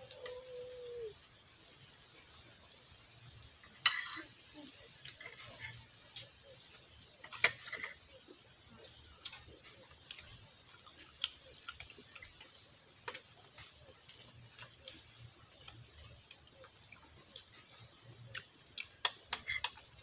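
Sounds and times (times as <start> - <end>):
chewing and mouth smacks: 8.8 - 20.0.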